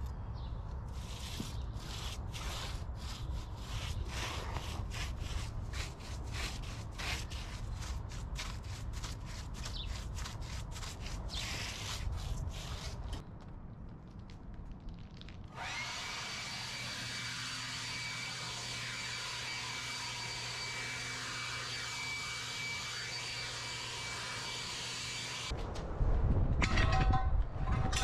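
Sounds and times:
paintbrush scrubbing on rough surface: 0.9s - 13.2s
steady low rumble: 25.5s - 28.0s.

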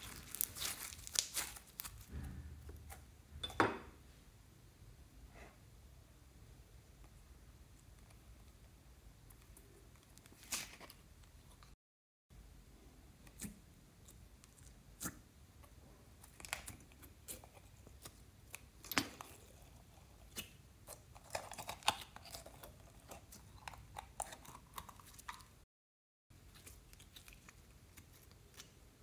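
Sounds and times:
slime squelching and popping: 0.0s - 2.1s.

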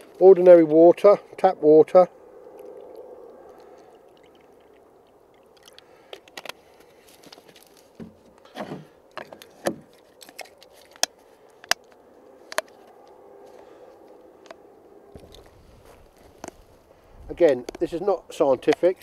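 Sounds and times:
water trickling into plastic tub: 2.5s - 6.2s.

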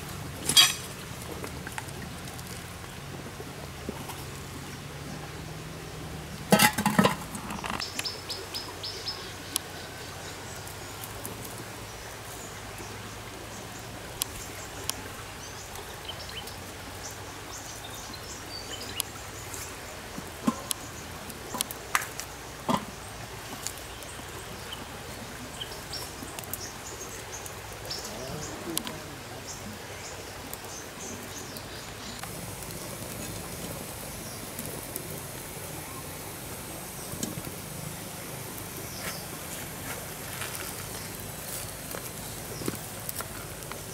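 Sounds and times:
metal pot clattering: 0.5s - 0.9s, 6.5s - 7.8s
birds chirping: 11.7s - 43.9s.

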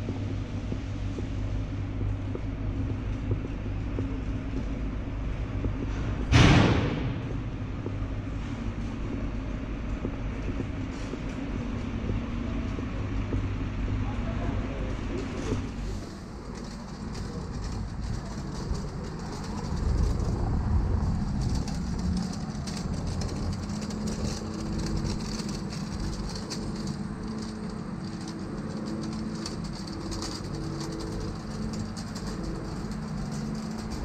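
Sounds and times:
vehicle engine rumbling: 0.0s - 34.0s
faint clicking: 15.1s - 34.0s.

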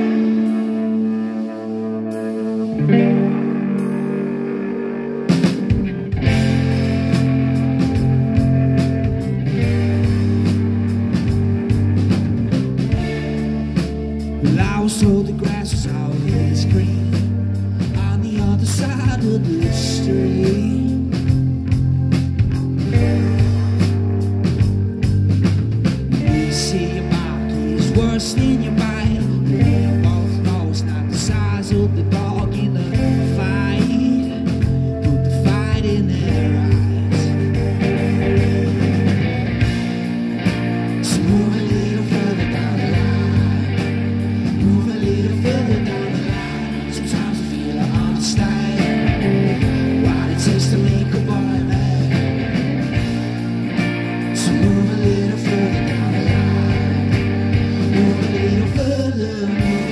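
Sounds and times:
bass guitar: 0.0s - 59.9s
drum kit: 0.0s - 59.9s
electric guitar: 0.0s - 59.9s
man singing: 14.4s - 21.6s, 26.1s - 39.2s, 40.9s - 53.1s, 54.2s - 59.9s.

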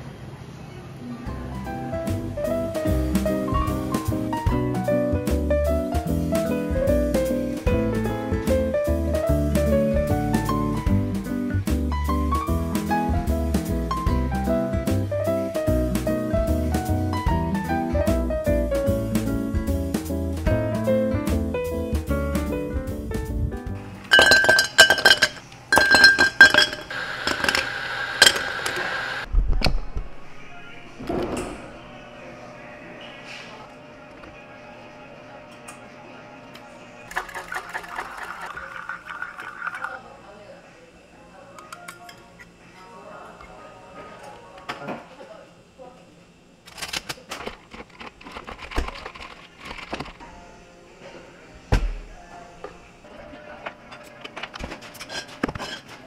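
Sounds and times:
background music: 1.3s - 26.7s
ice clattering into glasses: 24.1s - 28.5s, 37.1s - 40.0s
ice clinks: 24.1s - 28.5s.

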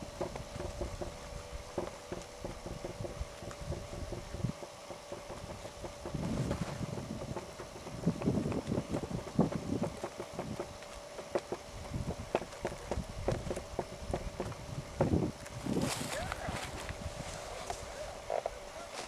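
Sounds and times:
wind buffeting microphone: 0.0s - 18.0s
hooves trotting on dirt: 0.0s - 19.0s.

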